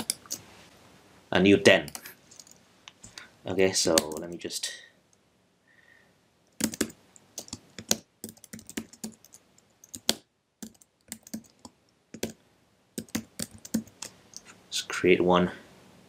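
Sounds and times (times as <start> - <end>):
computer keyboard typing: 0.0 - 0.4, 4.0 - 4.3, 6.6 - 12.4, 13.0 - 14.4.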